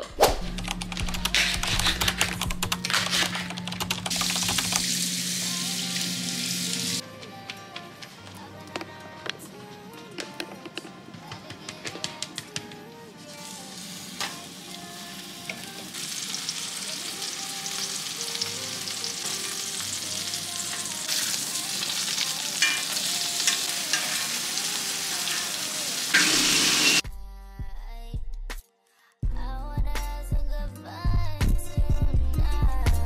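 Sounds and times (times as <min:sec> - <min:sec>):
steak sizzling in skillet: 0:04.7 - 0:07.0, 0:13.4 - 0:27.0.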